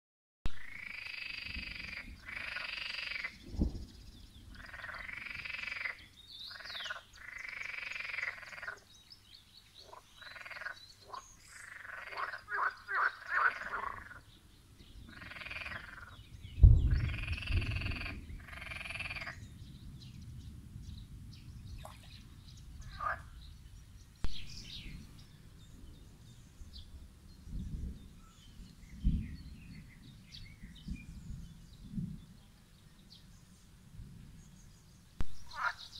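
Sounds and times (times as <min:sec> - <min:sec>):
frogs croaking: 0:00.6 - 0:03.4, 0:04.5 - 0:08.9, 0:09.8 - 0:14.3, 0:15.1 - 0:16.2, 0:16.9 - 0:19.5, 0:22.8 - 0:23.4, 0:35.4 - 0:35.9
low thump and rumble: 0:16.6 - 0:18.4.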